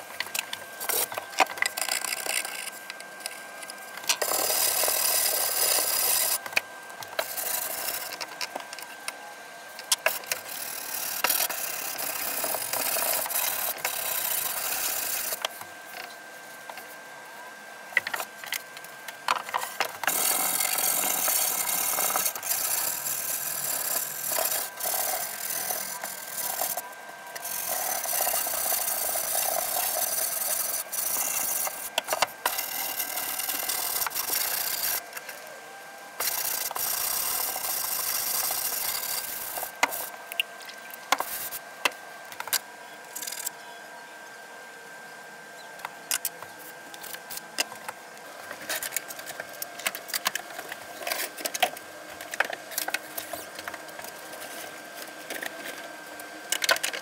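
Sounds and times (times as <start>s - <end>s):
hand sanding wood: 7.1s - 8.6s, 10.0s - 15.5s, 19.5s - 26.8s, 27.4s - 35.0s.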